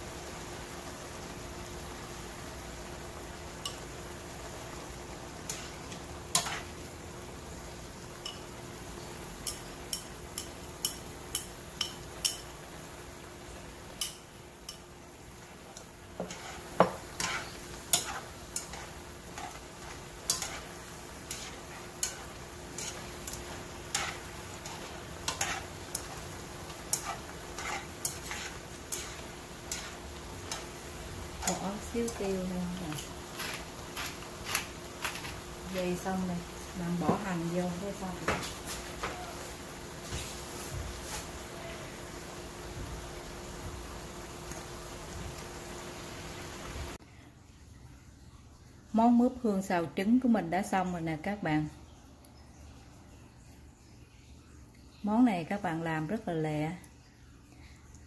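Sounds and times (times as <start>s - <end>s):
faint sizzle: 0.0s - 58.0s
utensils scraping frying pan: 5.4s - 6.9s, 14.0s - 35.6s.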